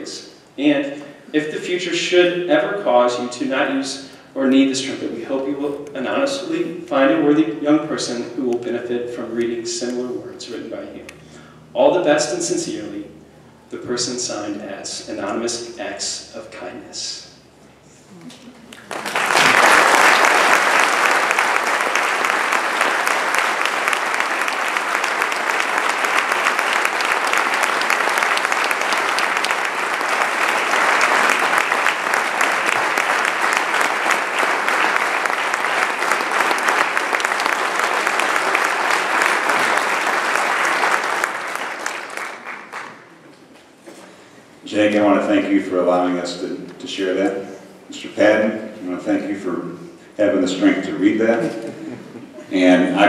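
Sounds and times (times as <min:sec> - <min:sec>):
audience applauding: 0:18.7 - 0:43.1.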